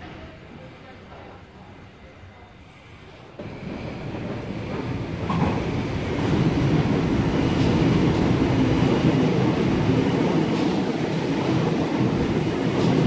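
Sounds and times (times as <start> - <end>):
electric train passing at speed: 2.8 - 13.0.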